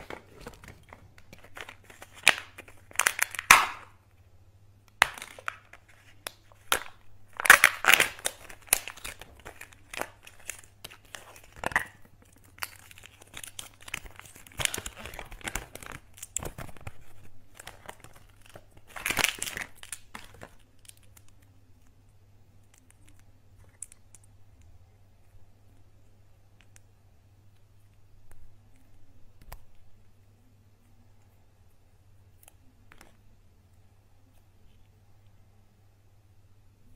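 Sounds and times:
plastic and foil crinkling and tearing: 0:00.0 - 0:03.9, 0:05.0 - 0:21.5.

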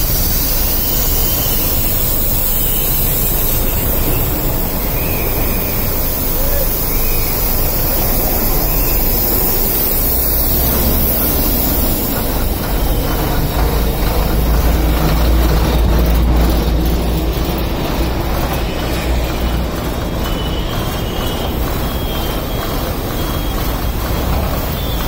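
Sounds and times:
heavy traffic rumble: 0:00.0 - 0:25.0.

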